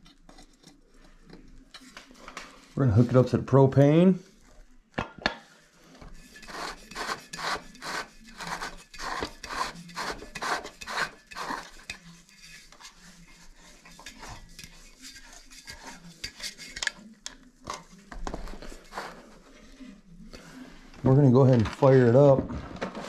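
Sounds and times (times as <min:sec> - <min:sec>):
dry scraping rub: 0:05.8 - 0:17.1.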